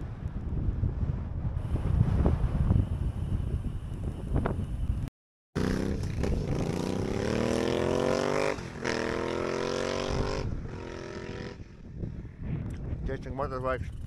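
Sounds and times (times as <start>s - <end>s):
wind buffeting microphone: 0.0s - 5.1s, 9.9s - 14.0s
motorcycle engine accelerating: 5.6s - 11.7s.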